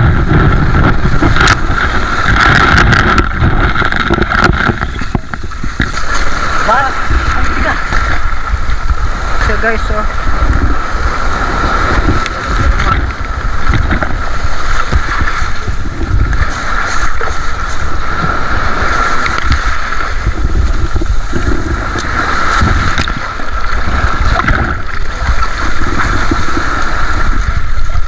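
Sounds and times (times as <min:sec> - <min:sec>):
low rumble: 0:00.0 - 0:28.0
water sloshing and splashing: 0:00.0 - 0:28.0.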